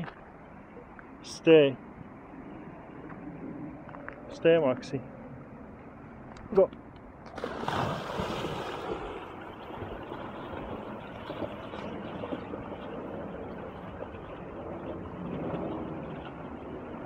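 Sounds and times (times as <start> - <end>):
creek rushing: 7.4 - 17.0.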